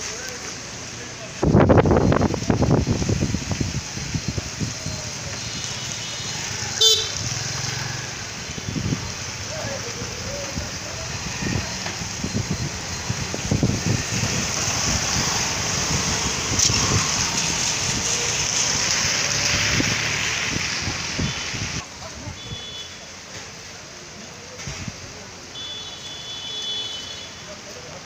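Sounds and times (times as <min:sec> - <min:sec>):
rain and wind rushing: 0:00.0 - 0:25.5
wind buffeting microphone: 0:01.4 - 0:05.2, 0:10.2 - 0:18.8.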